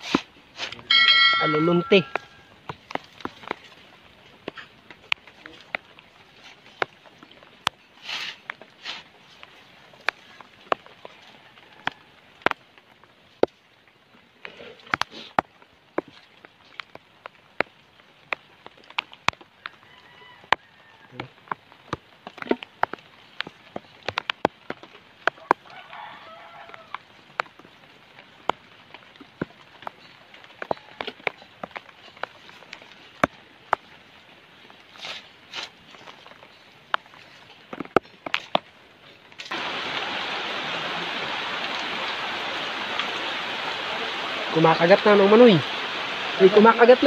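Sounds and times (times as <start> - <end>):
hand digging in damp soil: 0.0 - 0.9, 8.0 - 9.1, 34.9 - 36.2
flooded creek rushing: 0.0 - 47.0.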